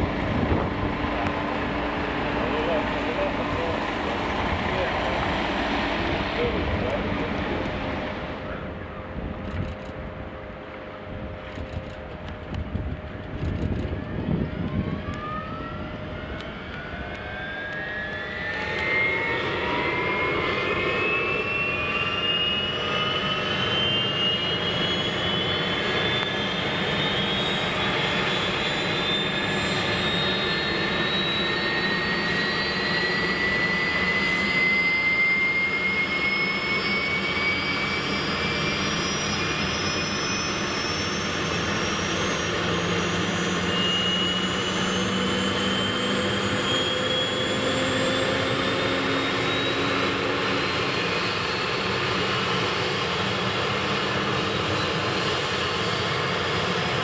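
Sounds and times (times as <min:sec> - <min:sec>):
helicopter rotor turning: 0:00.0 - 0:10.6, 0:11.2 - 0:57.0
helicopter engines whining: 0:00.0 - 0:57.0.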